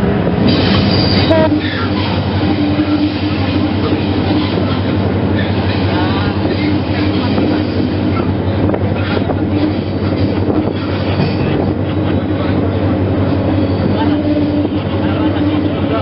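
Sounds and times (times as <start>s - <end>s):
locomotive engine drone: 0.0s - 16.0s
rail clicks: 0.0s - 16.0s
wheels rumbling on rails: 0.0s - 16.0s
high wheel squeal: 0.6s - 4.8s.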